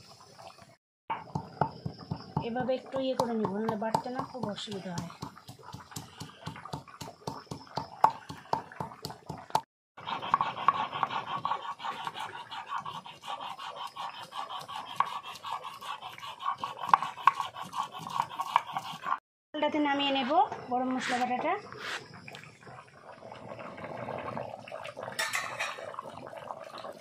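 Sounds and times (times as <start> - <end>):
stone roller knocking on slab: 1.3 - 9.6
stone grinding spices: 3.1 - 9.2, 10.0 - 19.2.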